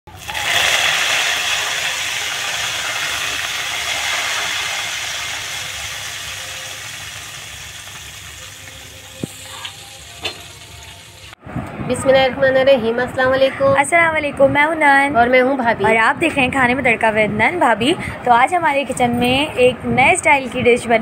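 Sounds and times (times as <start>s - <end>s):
hot oil sizzling: 0.1s - 11.4s.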